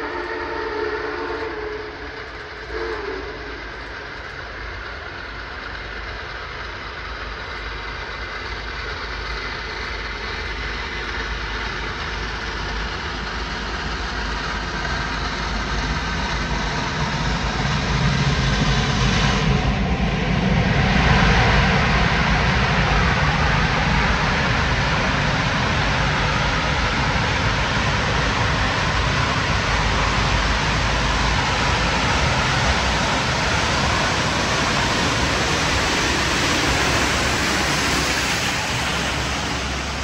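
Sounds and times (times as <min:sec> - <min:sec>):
train chord whistle: 0:00.0 - 0:03.7
approaching train noise: 0:00.0 - 0:40.0.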